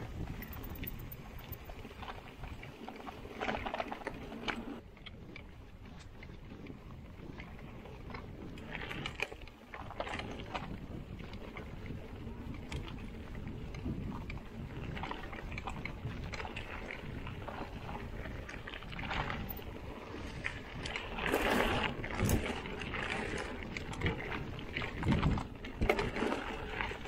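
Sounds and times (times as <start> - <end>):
bike tyres on dirt trail: 0.0 - 27.0
wind rumble on microphone: 0.0 - 27.0
bike rattling over bumps: 7.6 - 27.0.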